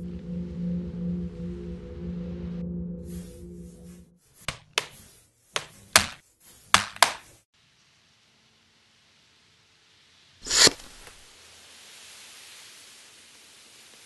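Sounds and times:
sharp taps: 0:05.6 - 0:07.2.

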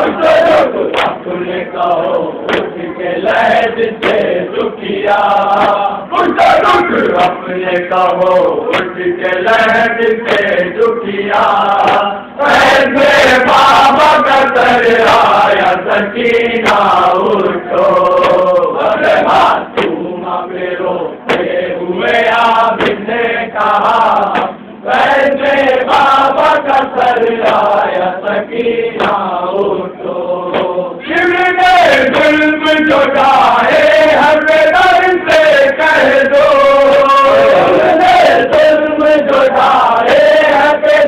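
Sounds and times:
man reciting a lament: 0:00.0 - 0:20.0, 0:30.5 - 0:41.0
men chanting in chorus: 0:00.0 - 0:41.0
chest-beating slaps: 0:00.2 - 0:01.3, 0:02.0 - 0:07.4, 0:08.7 - 0:09.0, 0:09.6 - 0:10.7, 0:11.4 - 0:12.8, 0:16.6 - 0:17.0, 0:17.8 - 0:20.1, 0:21.2 - 0:21.6, 0:22.6 - 0:23.1, 0:24.2 - 0:24.7, 0:25.9 - 0:28.0, 0:28.9 - 0:29.3, 0:30.5 - 0:31.2.

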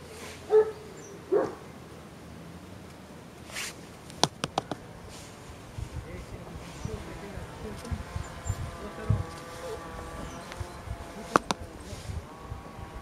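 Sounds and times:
short hiss: 0:03.5 - 0:03.8
quick sharp clicks: 0:04.1 - 0:04.8.

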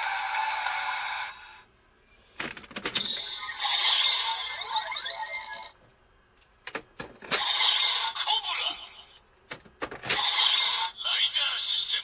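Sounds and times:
toy belt electronic voice: 0:03.0 - 0:05.7, 0:07.4 - 0:09.2, 0:10.2 - 0:12.0
toy sound effects: 0:03.0 - 0:05.8, 0:07.4 - 0:09.1, 0:10.1 - 0:12.0.

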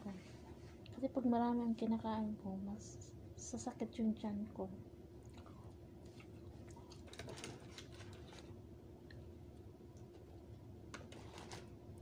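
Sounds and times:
chewing and food handling: 0:05.2 - 0:11.7.

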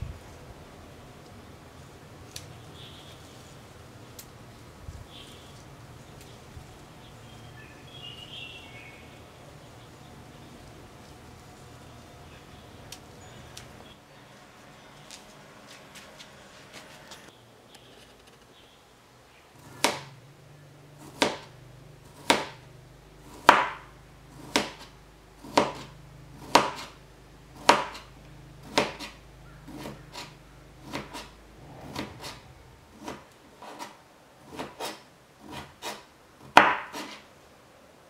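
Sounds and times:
knife slicing on cutting board: 0:28.7 - 0:32.4, 0:33.0 - 0:36.0, 0:36.6 - 0:37.2.

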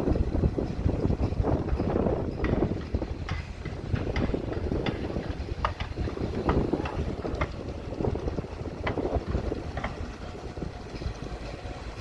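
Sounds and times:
excavator diesel engine rumble: 0:00.0 - 0:12.0
sharp metal clanks and knocks: 0:00.7 - 0:07.6.

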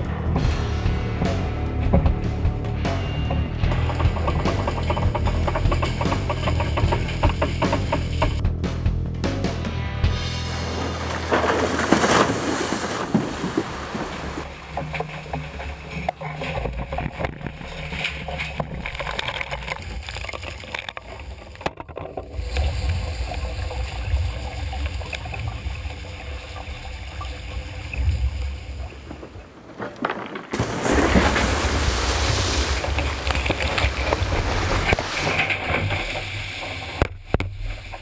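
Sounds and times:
knocks of loose gear: 0:00.0 - 0:08.4
water sloshing and gurgling: 0:00.0 - 0:08.4, 0:10.4 - 0:38.0
low rumble: 0:00.0 - 0:16.0
wind and water rushing: 0:10.9 - 0:21.6, 0:22.3 - 0:29.7, 0:30.5 - 0:38.0.

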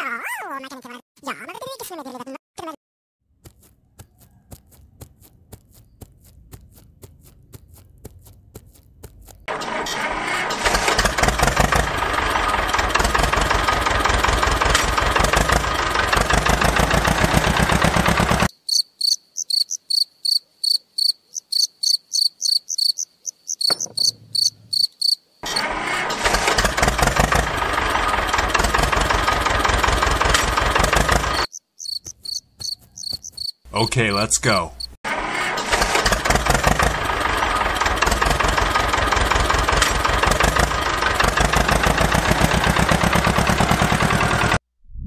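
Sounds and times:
small engine puttering: 0:03.5 - 0:18.5, 0:25.4 - 0:34.0, 0:34.8 - 0:44.6
crickets chirping: 0:18.5 - 0:25.4, 0:31.4 - 0:33.7.

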